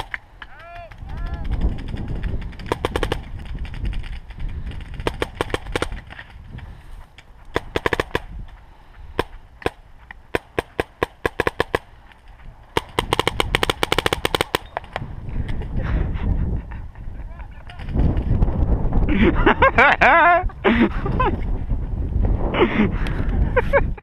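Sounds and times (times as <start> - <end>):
paintball markers firing: 0.0 - 6.6, 7.2 - 15.1
wind rumble on microphone: 0.6 - 9.4, 12.3 - 24.0.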